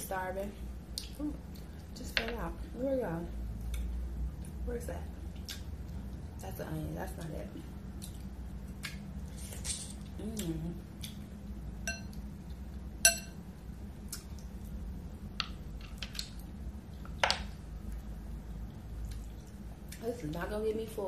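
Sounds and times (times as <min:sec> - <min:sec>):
clink against glass bowl: 0:11.9 - 0:12.1, 0:13.0 - 0:13.4.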